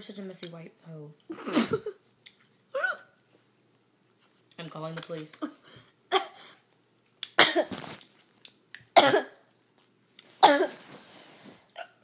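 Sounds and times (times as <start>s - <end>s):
girl coughing hard: 6.1s - 6.5s, 7.4s - 7.8s, 9.0s - 9.4s, 10.4s - 10.8s.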